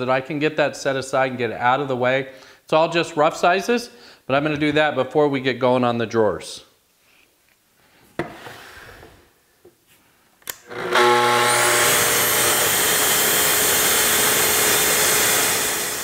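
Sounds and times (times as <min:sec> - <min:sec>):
track saw cutting plywood: 0:10.7 - 0:16.0.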